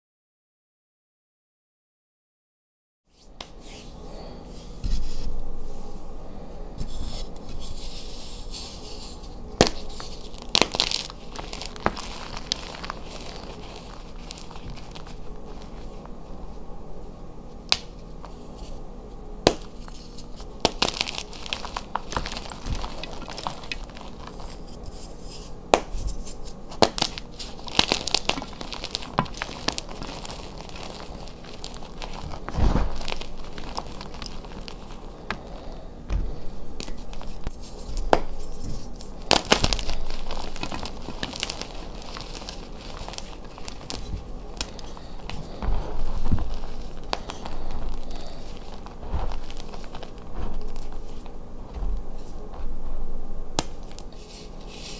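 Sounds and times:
chalk crunching by hand: 6.8s - 16.2s, 19.5s - 52.7s.

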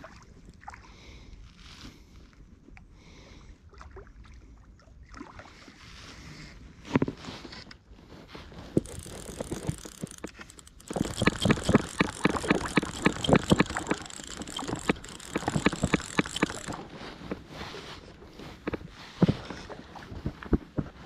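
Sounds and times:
fly reel ratchet clicking: 8.7s - 16.9s.

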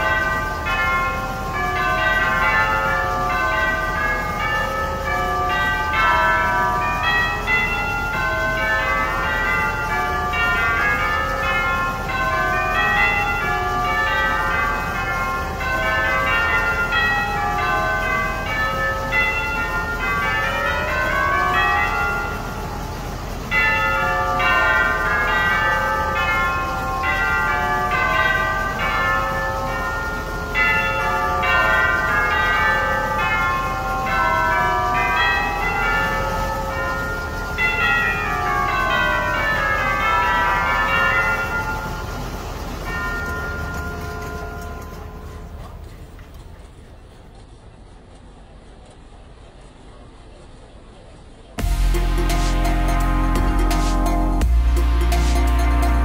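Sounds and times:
tubular bells melody: 0.0s - 46.0s, 51.6s - 56.0s
low diesel engine rumble: 0.0s - 56.0s.

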